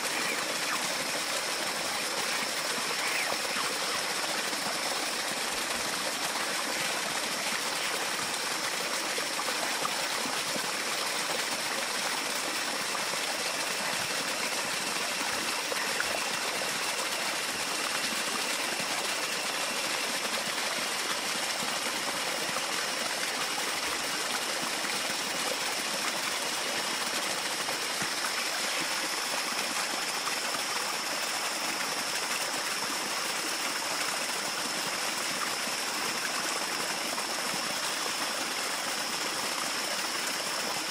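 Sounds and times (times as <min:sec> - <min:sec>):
water rushing: 0:00.0 - 0:40.9.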